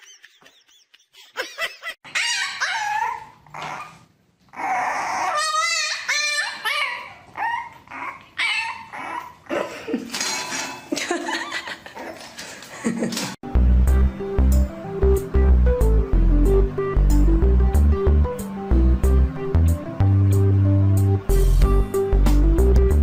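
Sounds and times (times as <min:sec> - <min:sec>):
dog whining and yipping: 0:02.0 - 0:09.4.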